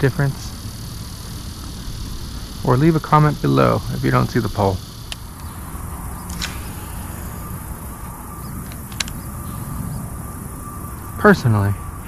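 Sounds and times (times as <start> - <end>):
low outdoor rumble: 0.0 - 12.0
brief clicks: 8.0 - 9.2.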